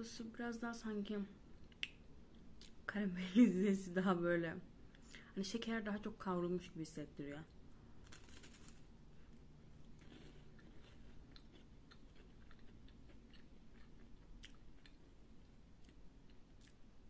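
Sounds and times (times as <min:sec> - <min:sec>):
soft crunches of chewing wafer: 0:08.0 - 0:16.8.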